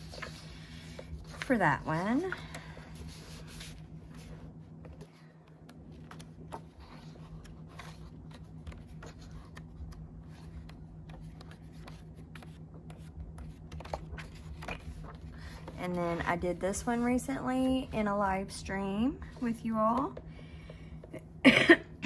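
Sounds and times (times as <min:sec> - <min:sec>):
paper pages flipping: 0:00.0 - 0:16.5
low steady hum: 0:00.0 - 0:22.0.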